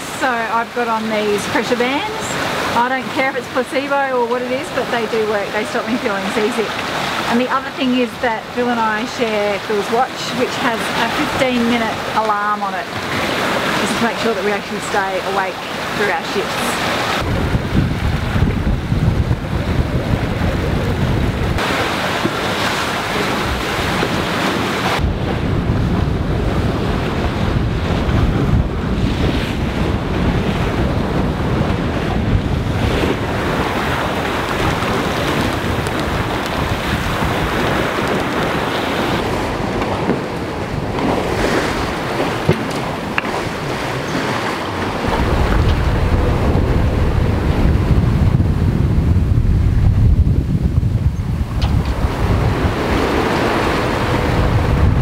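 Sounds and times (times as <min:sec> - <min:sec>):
water rushing along hull: 0:00.0 - 0:55.0
wind buffeting microphone: 0:00.0 - 0:55.0.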